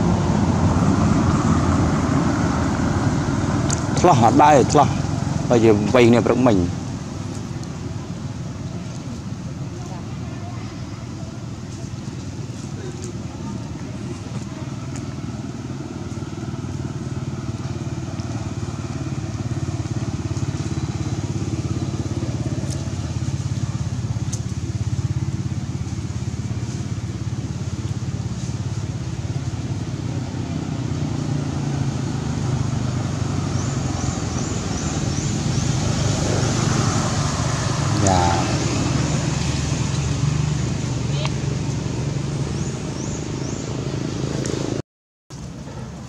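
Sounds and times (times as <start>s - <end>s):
engine humming steadily: 0.0s - 46.0s.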